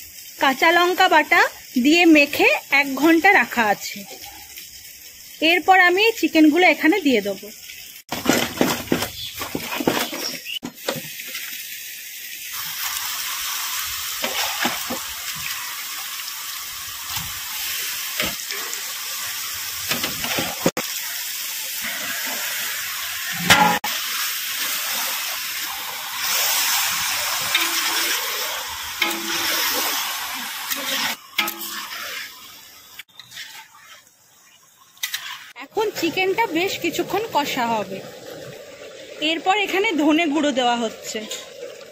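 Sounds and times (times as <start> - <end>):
chicken sizzling in hot oil: 0.0 - 37.9
metal spatula scraping and knocking: 23.4 - 23.8.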